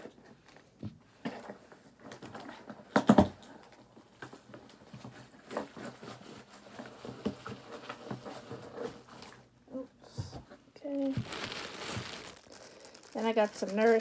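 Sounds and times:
cardboard packaging taps and rustles: 11.0 - 12.6.

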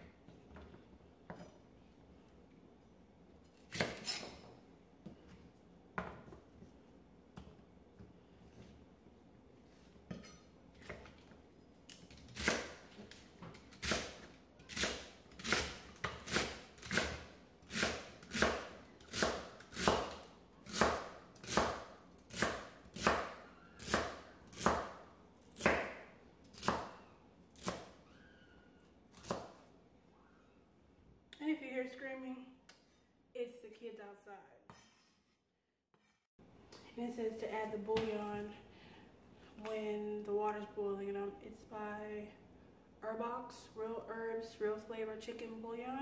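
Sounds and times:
knife chopping celery on board: 13.8 - 25.0, 25.6 - 27.0.

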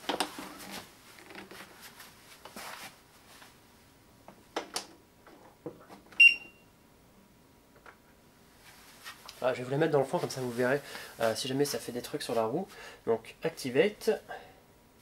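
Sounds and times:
rustling: 0.0 - 3.6, 8.5 - 12.5.

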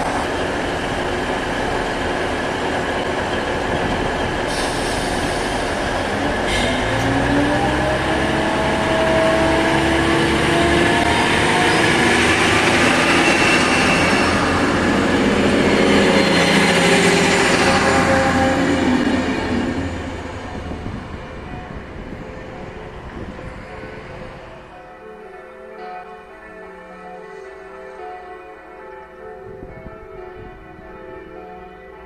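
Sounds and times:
diesel train engine rising in pitch: 0.0 - 23.3
train wheels rumbling: 0.0 - 24.7.

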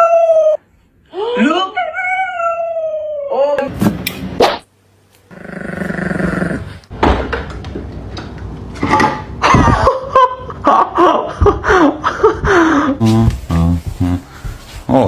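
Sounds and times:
person laughing and exclaiming: 9.4 - 13.2.

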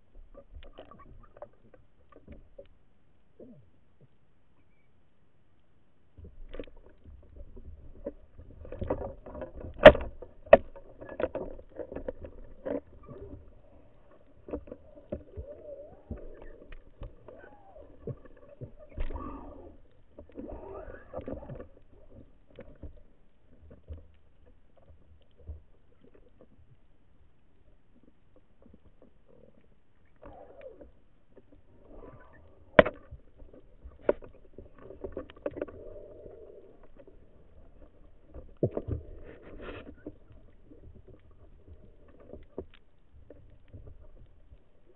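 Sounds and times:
muffled underwater splashing and bubbling: 6.3 - 23.8, 30.1 - 42.5.

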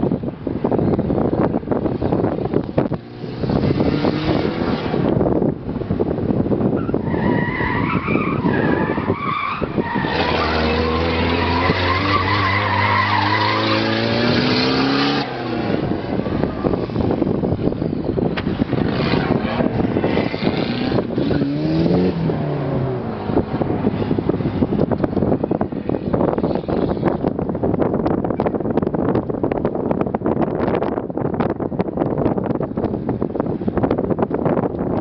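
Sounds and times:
tires squealing: 6.6 - 27.3
car engine running hard: 8.5 - 35.0.

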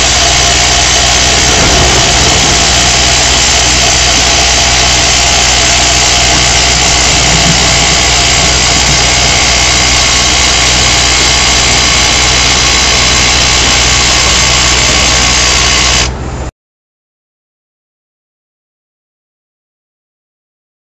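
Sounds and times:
hydraulic rock drill hammering: 0.0 - 16.1
excavator engine: 0.0 - 16.5.

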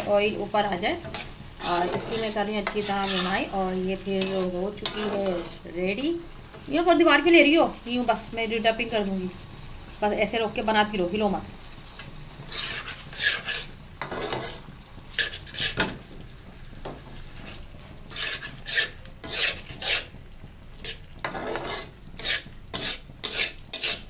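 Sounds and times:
metal spatula scraping iron pan: 0.0 - 5.8, 12.4 - 16.0, 17.2 - 20.2, 20.8 - 24.0
faint sizzle: 0.0 - 24.0.

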